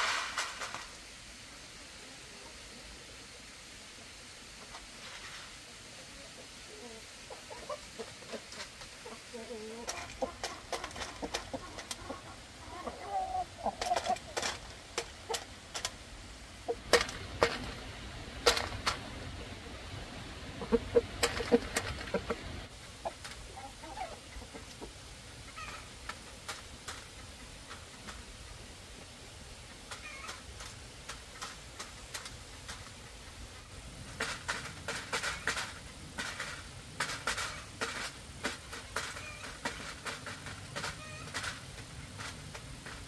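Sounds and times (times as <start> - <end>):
chickens clucking: 1.5 - 43.0.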